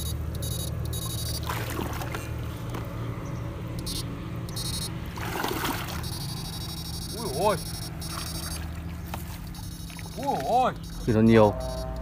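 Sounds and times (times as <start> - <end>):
high electronic whine pulsing: 0.0 - 1.5, 3.8 - 5.0, 6.0 - 8.8, 9.4 - 12.0
low steady hum: 0.0 - 12.0
water swishing: 1.4 - 2.6, 5.0 - 6.2.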